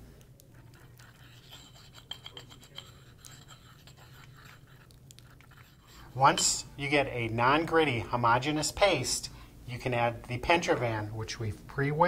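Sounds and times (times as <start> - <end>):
pestle scraping in a mortar: 0.6 - 6.5.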